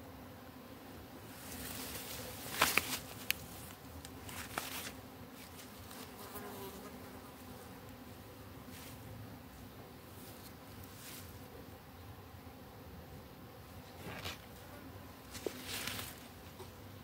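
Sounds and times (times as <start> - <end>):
bee buzzing: 0.0 - 17.0.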